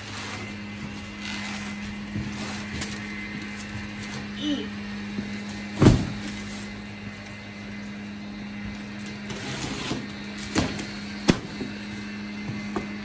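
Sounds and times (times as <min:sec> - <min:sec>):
cardboard scuffing and rustling: 0:00.0 - 0:04.4, 0:05.1 - 0:06.9
steady low hum: 0:00.0 - 0:13.0
thump: 0:05.8 - 0:06.2.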